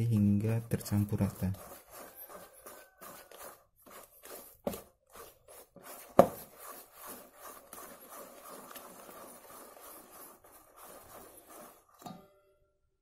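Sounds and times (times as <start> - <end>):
spoon scraping batter in bowl: 0.0 - 12.3.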